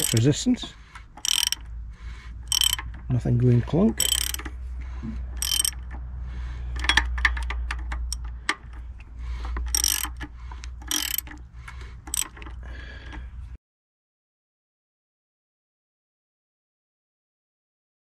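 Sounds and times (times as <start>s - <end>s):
ratchet handle clicking: 0.0s - 1.7s, 2.4s - 3.1s, 3.8s - 4.6s, 5.3s - 6.1s, 6.7s - 13.2s.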